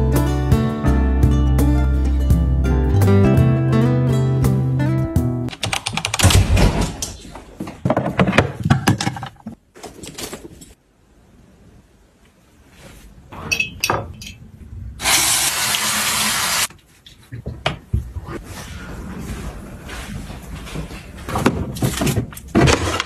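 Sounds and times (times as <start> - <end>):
faucet running water: 15.0 - 16.7.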